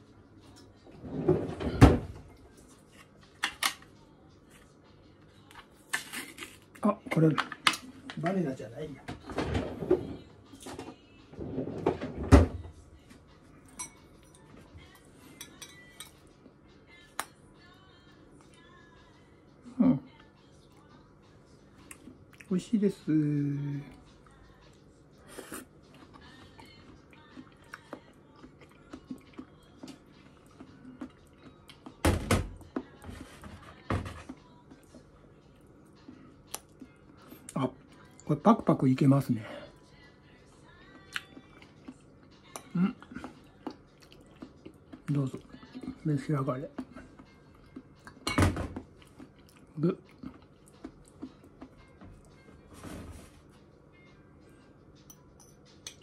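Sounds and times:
fork clinking on ceramic: 13.8 - 14.4.

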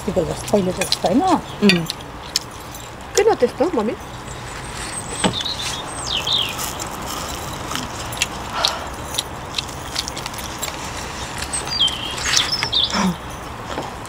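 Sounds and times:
people chewing and lip-smacking: 0.0 - 14.0
steady background hum: 0.0 - 14.0
high bird chirp: 4.0 - 7.5, 11.0 - 13.5.

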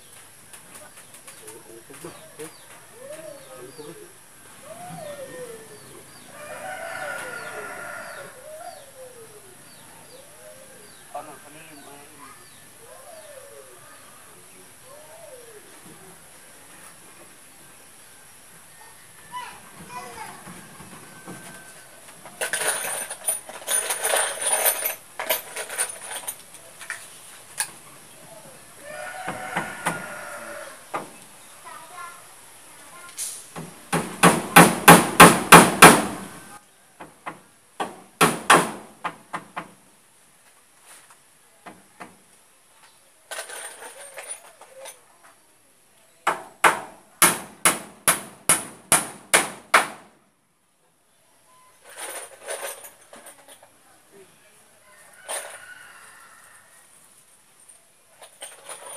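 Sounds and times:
rustling: 19.1 - 31.4, 40.2 - 41.4, 42.2 - 45.4, 51.7 - 53.9, 54.9 - 58.9
sharp knocks: 33.6 - 36.2, 37.0 - 39.8, 46.3 - 50.2
hammer striking nail into timber: 33.9 - 36.2, 37.8 - 39.7, 46.3 - 50.1.

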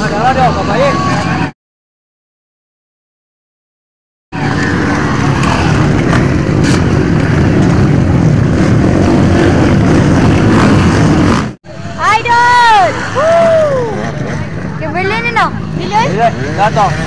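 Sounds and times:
dirt bikes racing past: 4.4 - 17.0.

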